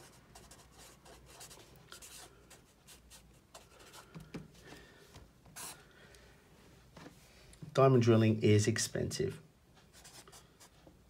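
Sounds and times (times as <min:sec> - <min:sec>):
marker scratching on paper: 0:00.0 - 0:04.2, 0:05.6 - 0:05.8.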